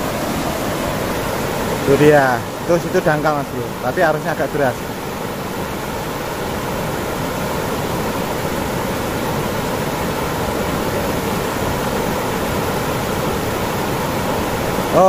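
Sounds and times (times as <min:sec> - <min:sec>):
river water rushing over weir: 0:00.0 - 0:15.0.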